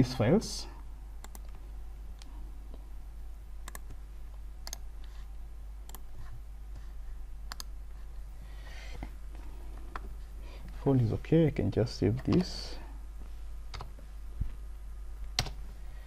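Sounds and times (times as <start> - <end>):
faint low hum: 0.0 - 16.0
computer mouse clicking: 1.2 - 1.6, 3.6 - 4.0, 4.6 - 5.1, 5.8 - 6.3, 7.5 - 7.8.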